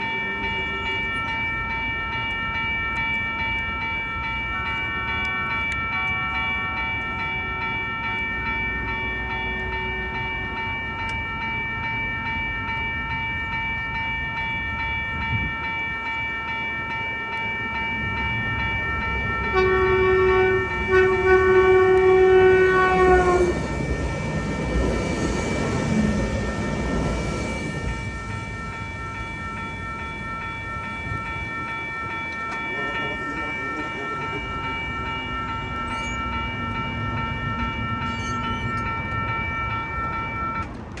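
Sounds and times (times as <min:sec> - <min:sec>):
electronic crossing bell ringing: 0:00.0 - 0:40.8
train rumbling: 0:00.0 - 0:41.0
train horn: 0:19.4 - 0:23.8.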